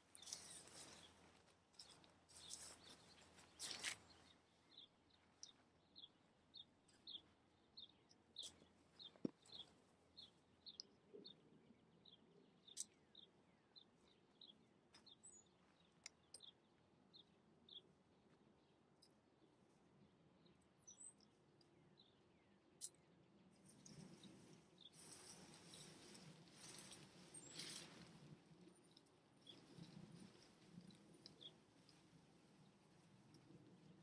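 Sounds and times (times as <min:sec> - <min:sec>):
bird chirping: 0:01.8 - 0:17.9
tent nylon rustling: 0:25.0 - 0:28.3.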